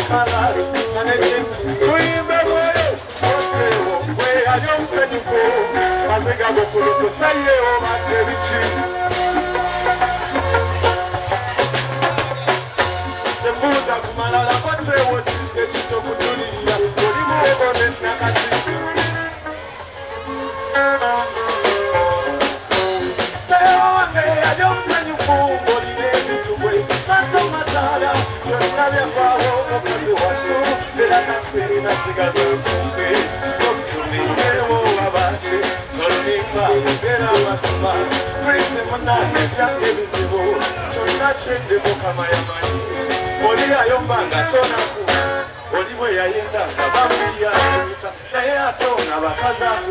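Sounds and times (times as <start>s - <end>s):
man singing into a microphone: 0.0s - 19.4s, 21.4s - 49.9s
band with drums and bass: 0.0s - 49.9s.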